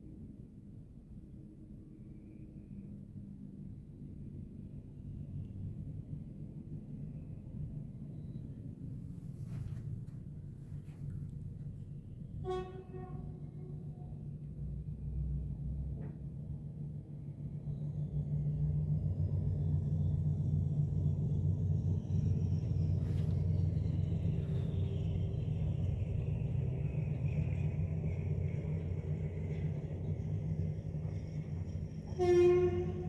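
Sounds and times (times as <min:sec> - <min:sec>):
train rumbling past: 0:00.0 - 0:33.0
train horn: 0:12.4 - 0:14.3, 0:32.0 - 0:33.0.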